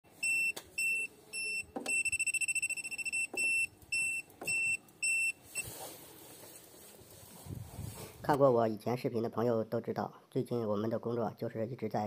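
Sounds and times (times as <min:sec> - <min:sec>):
high-pitched multimeter beeps: 0:00.2 - 0:05.7.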